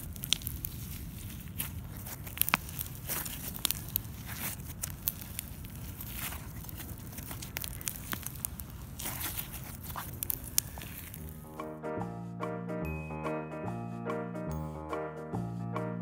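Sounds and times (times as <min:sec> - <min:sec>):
foam slime crackling: 0:00.0 - 0:11.6
steady low rumble: 0:11.0 - 0:13.1.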